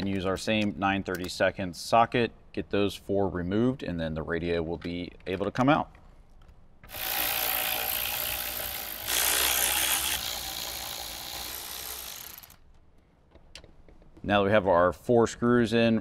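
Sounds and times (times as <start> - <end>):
cordless electric ratchet running: 6.9 - 12.6.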